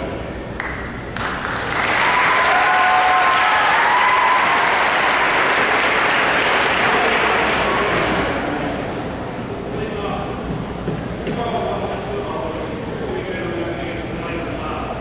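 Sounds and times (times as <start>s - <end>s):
crowd applauding: 0.6s - 8.8s.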